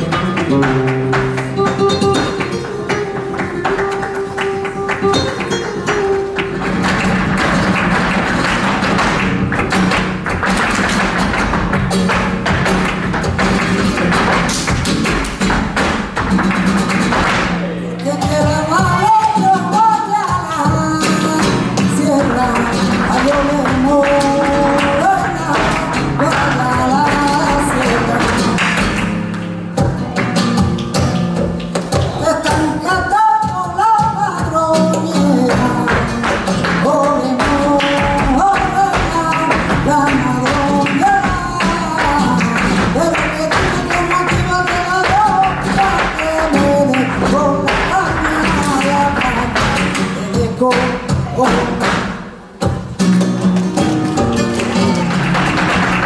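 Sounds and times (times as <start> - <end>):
dancers' footwork tapping: 0.0 - 56.0
flamenco guitar: 0.0 - 56.0
person singing: 17.6 - 29.0, 31.9 - 52.4.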